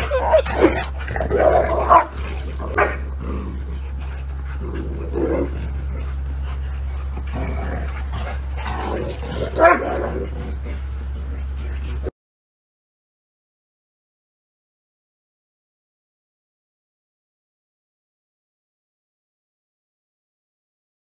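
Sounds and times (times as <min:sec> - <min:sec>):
dogs barking: 0:00.0 - 0:12.1
steady low hum: 0:00.0 - 0:12.1.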